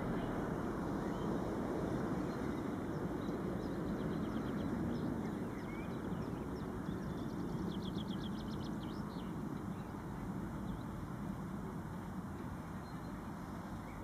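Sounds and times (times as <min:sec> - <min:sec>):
small birds singing: 0:00.0 - 0:11.4, 0:12.0 - 0:14.0
low outdoor background noise: 0:00.0 - 0:14.0.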